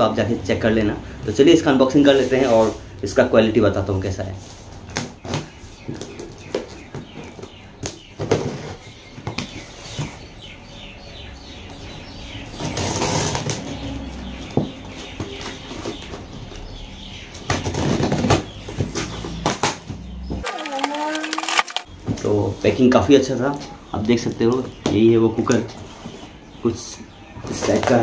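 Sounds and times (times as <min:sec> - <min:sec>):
packing tape pulled off: 0:20.4 - 0:21.9.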